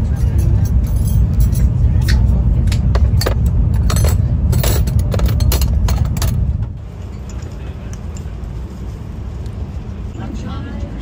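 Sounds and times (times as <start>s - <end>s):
sharp clinks and rattles: 0.0s - 8.4s
train rumble inside carriage: 0.0s - 11.0s.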